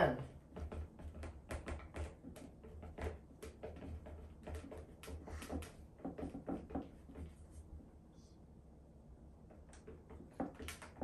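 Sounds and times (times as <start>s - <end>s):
marker pen writing on whiteboard: 0.2s - 7.8s.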